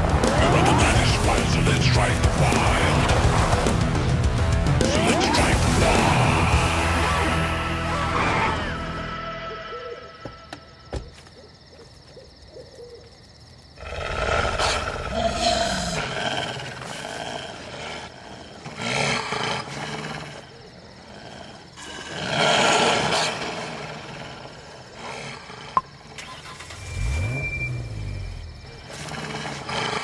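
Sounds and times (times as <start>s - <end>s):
wolves growling and snarling: 13.8s - 26.3s, 28.8s - 30.0s.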